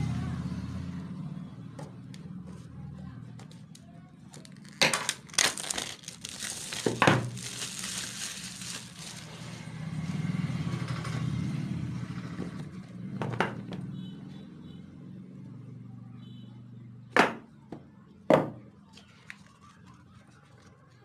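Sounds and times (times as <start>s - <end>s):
plastic crackles: 3.4s - 10.0s, 19.0s - 21.0s
plastic wrapping crinkling: 4.3s - 9.8s.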